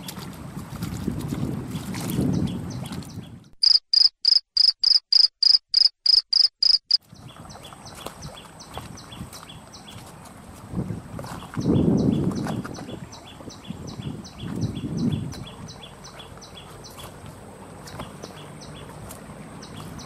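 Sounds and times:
water: 0:00.0 - 0:03.8, 0:06.7 - 0:20.0
wind: 0:00.0 - 0:20.0
cricket chirping: 0:03.6 - 0:07.0
faint insect chirping: 0:03.6 - 0:07.0.

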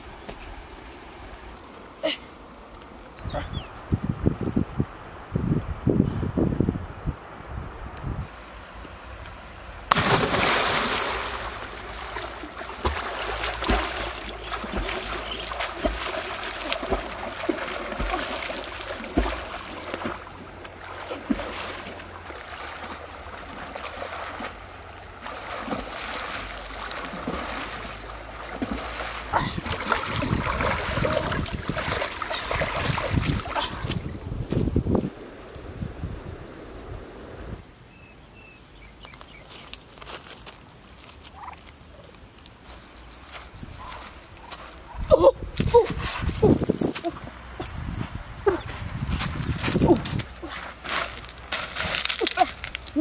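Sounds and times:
wind on microphone: 0:03.2 - 0:08.4, 0:29.3 - 0:37.6, 0:44.8 - 0:50.5
water splashing: 0:09.8 - 0:34.8.

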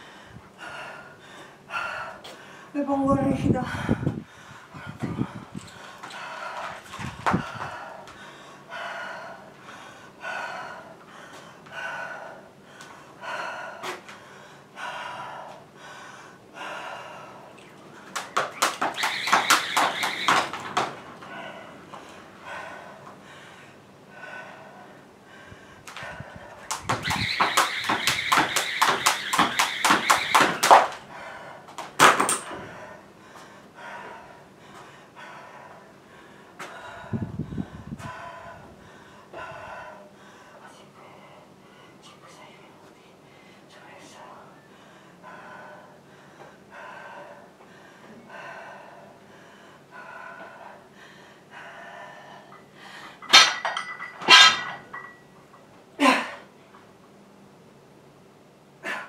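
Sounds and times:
person breathing: 0:00.0 - 0:02.8, 0:03.6 - 0:18.1, 0:21.2 - 0:26.6, 0:32.5 - 0:42.0, 0:43.1 - 0:43.7, 0:44.7 - 0:53.2
heavy breathing: 0:03.6 - 0:18.2, 0:21.2 - 0:26.6
jump rope slapping floor: 0:06.0 - 0:07.7, 0:18.0 - 0:21.1, 0:25.9 - 0:31.1, 0:31.7 - 0:32.5.

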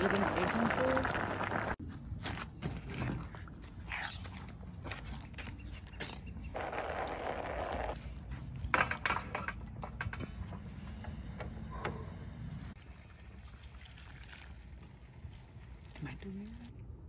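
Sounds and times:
water pouring into metal pot: 0:00.0 - 0:01.8, 0:12.8 - 0:16.2.

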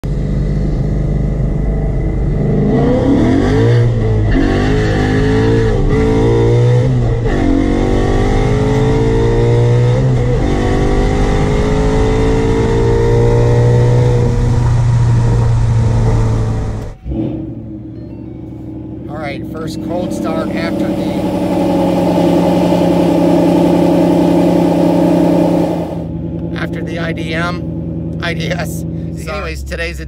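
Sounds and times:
car engine accelerating: 0:00.0 - 0:30.0.

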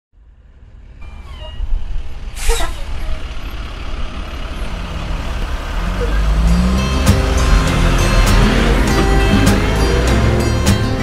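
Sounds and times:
diesel truck engine rumble: 0:00.2 - 0:11.0
falling squeal: 0:01.0 - 0:03.2
air brake hiss: 0:02.3 - 0:03.0.

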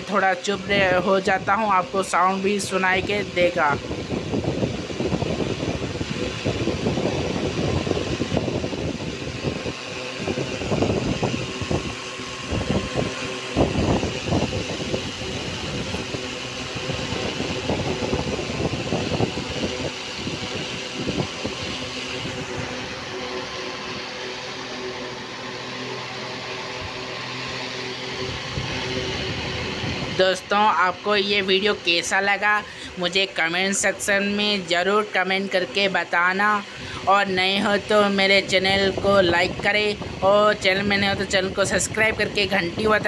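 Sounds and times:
electric motor hum and whine: 0:00.0 - 0:43.0
rush of moving air: 0:02.9 - 0:31.8.

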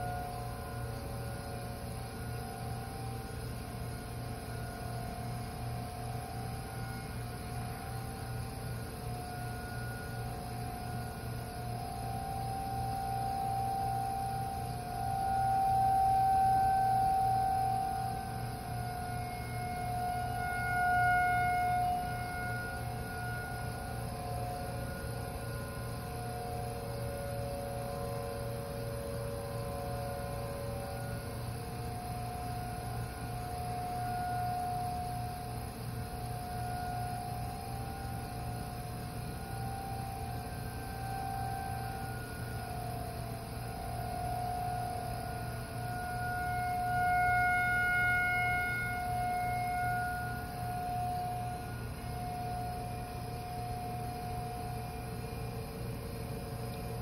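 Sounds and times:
low pulsing hum: 0:03.3 - 0:57.0
distant warning sirens: 0:09.5 - 0:25.3, 0:36.1 - 0:55.2.

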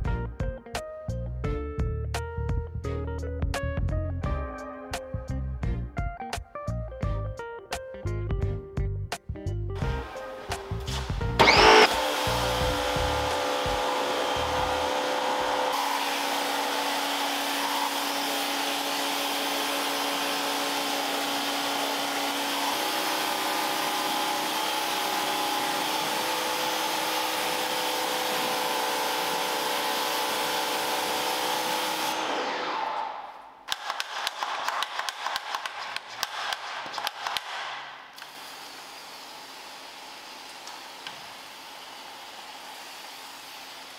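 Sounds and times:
vacuum cleaner motor whining: 0:10.0 - 0:33.4, 0:38.2 - 0:43.9
rapid clicks and knocks: 0:33.7 - 0:37.7.

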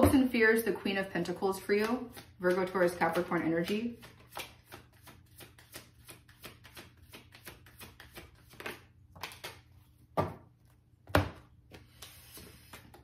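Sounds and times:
cards being shuffled: 0:01.7 - 0:09.9, 0:11.7 - 0:13.0.

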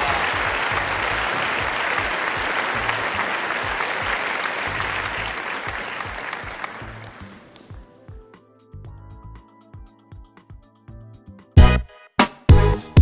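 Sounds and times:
applause: 0:00.0 - 0:07.8
background music with low beat: 0:06.8 - 0:13.0.

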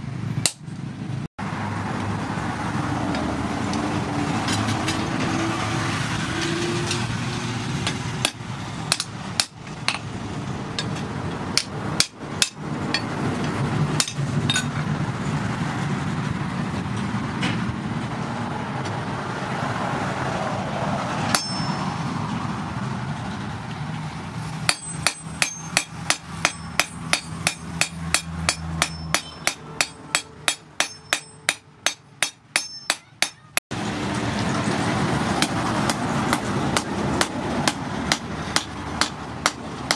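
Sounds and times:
hammer striking metal on anvil: 0:00.4 - 0:00.7, 0:07.8 - 0:10.1, 0:10.8 - 0:14.8, 0:21.3 - 0:22.0, 0:24.7 - 0:33.6, 0:35.4 - 0:39.9.

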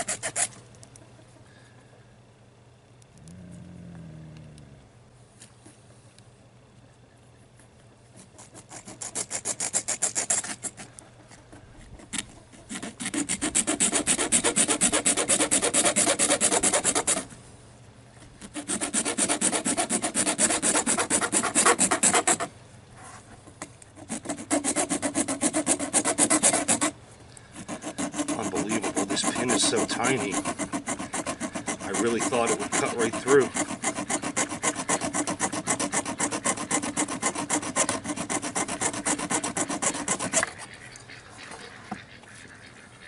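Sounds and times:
hacksaw sawing metal: 0:00.0 - 0:00.5, 0:08.4 - 0:10.8, 0:12.1 - 0:17.3, 0:18.4 - 0:22.5, 0:24.0 - 0:27.0, 0:27.6 - 0:40.6.

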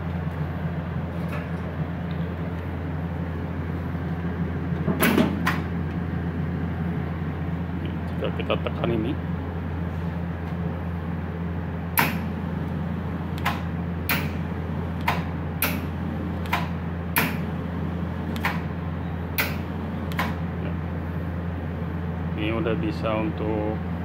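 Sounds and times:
welding machine hum: 0:00.0 - 0:24.0
torch trigger clicks: 0:13.3 - 0:14.4, 0:15.0 - 0:17.5, 0:18.3 - 0:18.7, 0:19.3 - 0:20.4.

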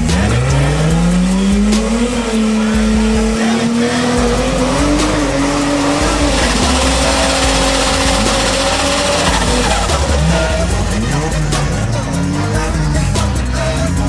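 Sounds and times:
car engine at high revs: 0:00.0 - 0:12.6
tyres squealing: 0:01.8 - 0:12.4.

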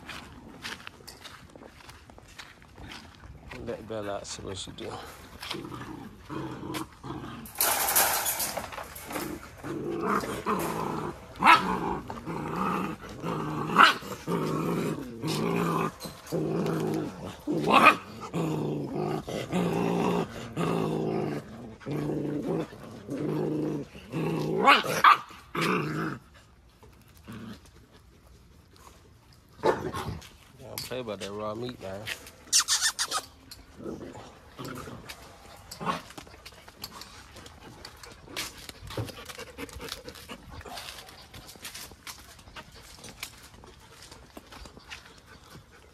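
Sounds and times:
puppies growling: 0:04.8 - 0:30.3, 0:31.9 - 0:45.9
puppy yips: 0:32.5 - 0:33.3.

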